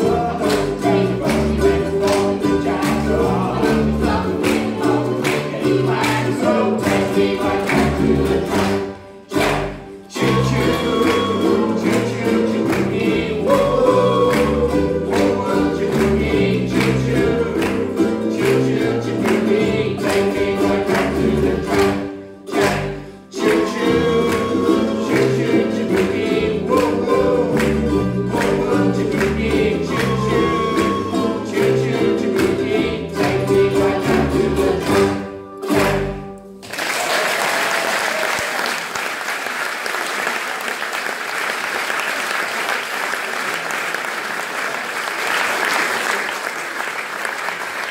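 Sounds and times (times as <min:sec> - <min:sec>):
people singing: 0:00.0 - 0:36.2
ukulele band strumming: 0:00.0 - 0:37.0
audience applause: 0:35.7 - 0:47.9.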